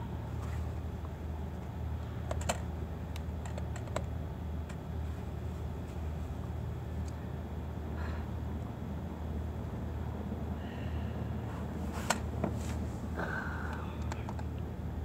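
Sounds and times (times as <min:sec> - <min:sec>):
steady low hum: 0:00.0 - 0:15.0
light irregular clicks and taps: 0:13.7 - 0:14.7.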